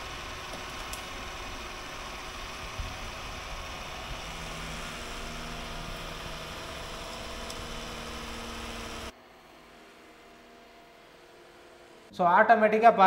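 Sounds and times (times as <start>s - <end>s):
robot vacuum suction hum: 0.0s - 9.1s.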